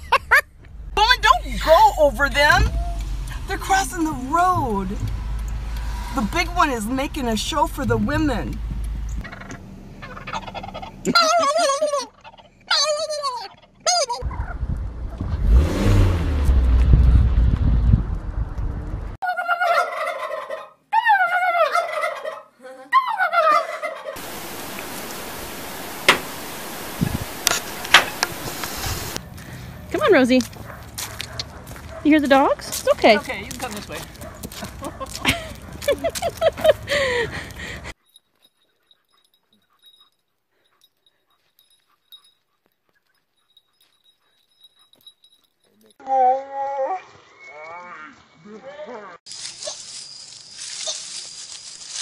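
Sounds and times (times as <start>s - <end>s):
turkey gobbling: 9.2s - 14.6s, 19.2s - 26.7s
faint hiss: 24.2s - 29.2s.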